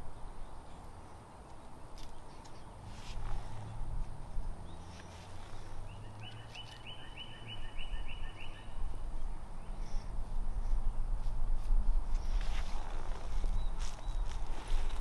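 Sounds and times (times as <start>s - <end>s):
low steady rumble: 2.5s - 6.6s, 8.6s - 15.0s
songbird singing repeated notes: 4.5s - 10.4s, 12.1s - 15.0s.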